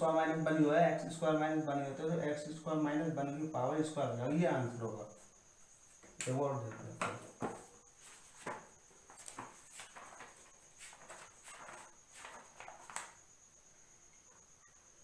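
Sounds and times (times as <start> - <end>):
paper rustling: 7.4 - 13.2.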